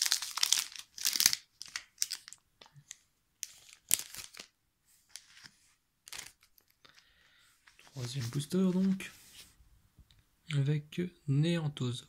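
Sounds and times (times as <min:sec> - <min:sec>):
foil wrapper crinkling: 0:00.0 - 0:02.4, 0:03.4 - 0:04.5.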